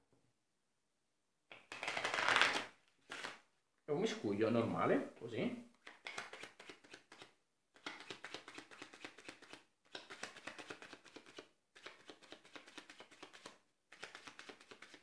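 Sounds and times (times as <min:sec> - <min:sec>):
playing cards shuffling: 0:01.5 - 0:03.4, 0:05.8 - 0:15.0.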